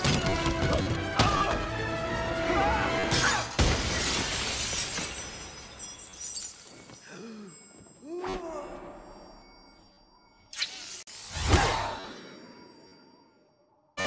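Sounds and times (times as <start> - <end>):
film score music: 0.0 - 3.6
glass shattering: 3.1 - 7.1
glass shards tinkling: 4.1 - 8.1.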